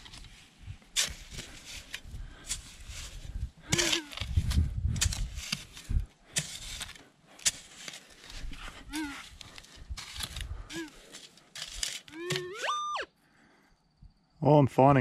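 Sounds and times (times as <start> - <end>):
metal detector beeps: 12.1 - 13.1.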